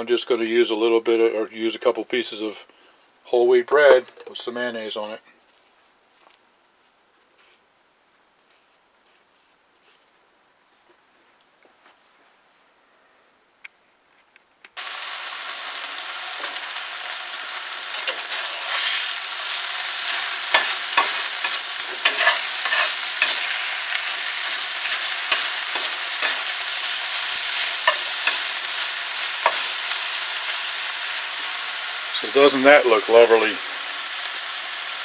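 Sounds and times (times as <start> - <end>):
meat sizzling in a skillet: 14.8 - 35.0
metal spatula scraping a pan: 17.9 - 28.6, 29.2 - 30.0.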